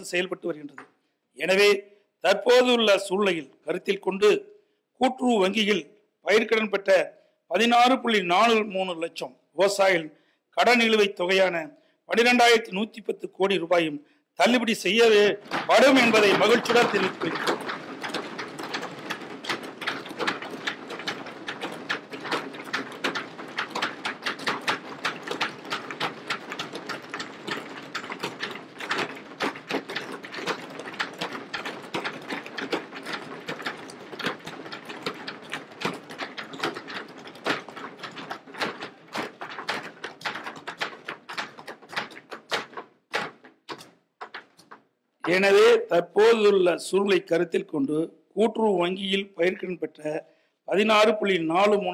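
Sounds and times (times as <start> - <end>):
people thumping wooden desks: 0.0 - 1.0, 14.4 - 46.6.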